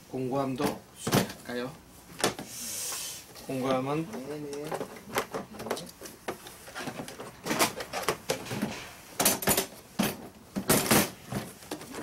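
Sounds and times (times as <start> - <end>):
plastic toolbox knocks and rattles: 6.8 - 12.0.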